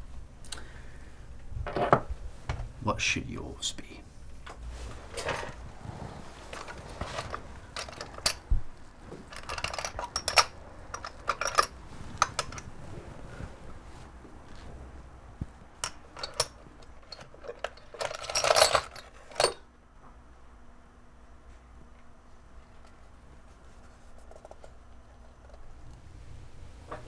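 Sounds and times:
small metal objects rattling in box: 17.0 - 19.6.

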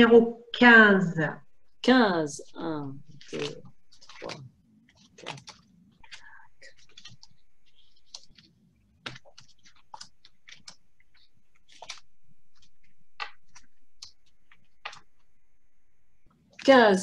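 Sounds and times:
cards clicking and snapping: 3.1 - 15.3.

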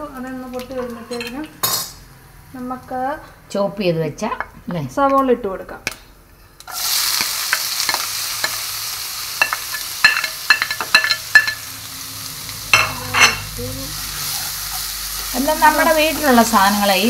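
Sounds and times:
onions sizzling in hot oil: 6.6 - 17.0.

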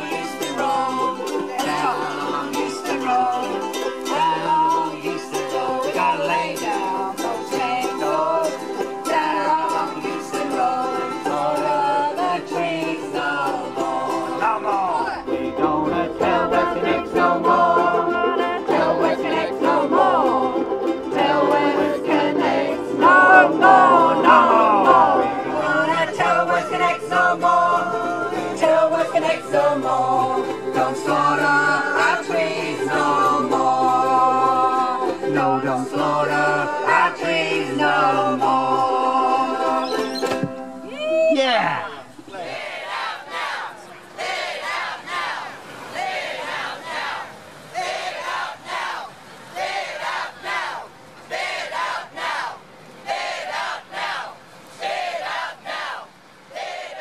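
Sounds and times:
group of voices singing: 0.0 - 40.8, 41.6 - 57.0
ukuleles and guitar strumming: 0.0 - 42.7.

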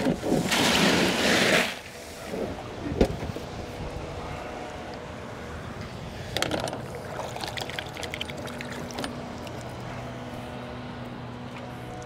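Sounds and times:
outdoor background noise: 0.0 - 12.0.

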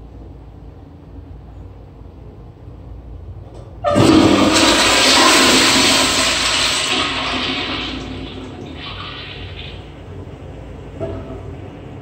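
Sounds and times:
low room hum: 0.0 - 12.0
toilet flushing: 3.8 - 10.1.

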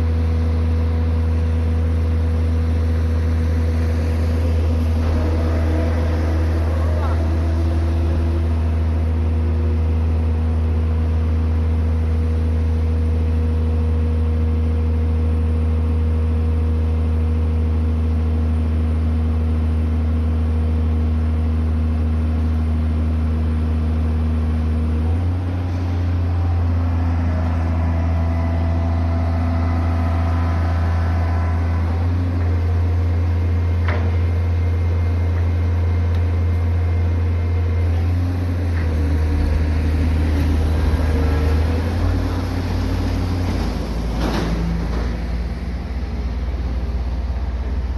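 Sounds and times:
diesel engine humming: 0.0 - 47.9
faint rising whines: 2.7 - 11.1.

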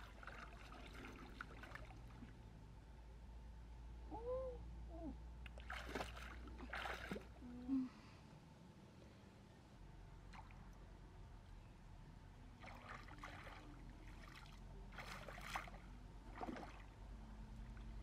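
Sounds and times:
water sloshing and splashing: 0.0 - 2.5, 5.5 - 7.4, 12.5 - 18.0
faint low hum: 0.0 - 18.0.

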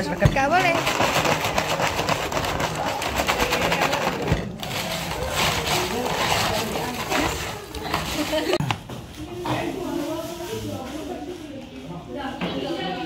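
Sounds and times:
ice cubes rattling in plastic basin: 0.0 - 8.6.

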